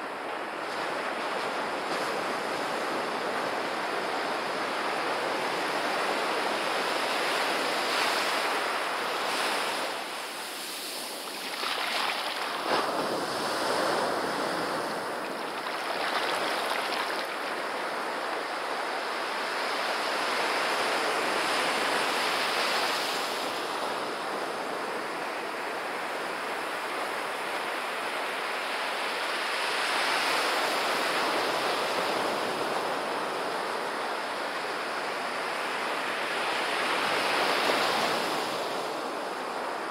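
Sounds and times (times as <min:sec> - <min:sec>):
small ocean waves breaking: 0:00.6 - 0:27.4.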